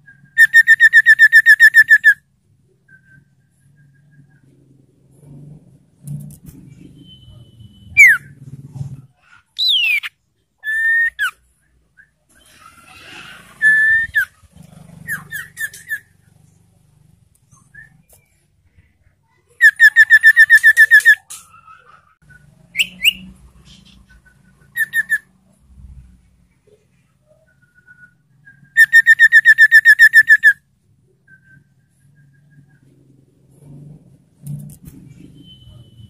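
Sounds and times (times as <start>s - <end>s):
bird singing whistled phrases: 0.0s - 2.2s, 7.3s - 8.3s, 9.6s - 11.4s, 13.6s - 14.3s, 19.6s - 21.3s, 24.4s - 25.2s, 27.5s - 30.6s.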